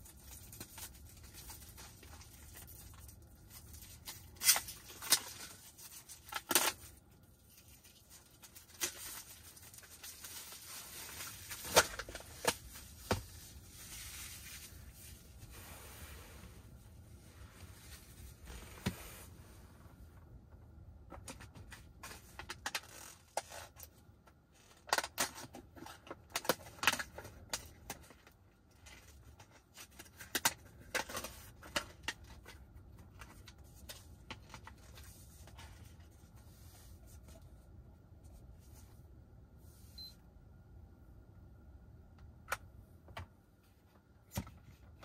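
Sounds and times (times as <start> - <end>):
low steady hum: 0.0 - 45.0.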